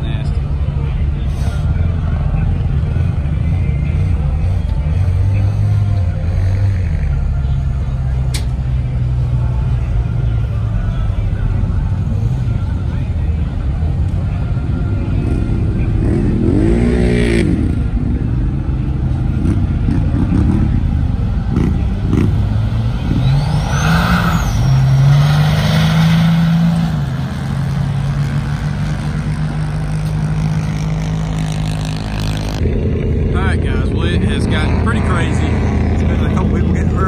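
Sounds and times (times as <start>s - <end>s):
pickup truck engine revving: 15.2s - 37.0s.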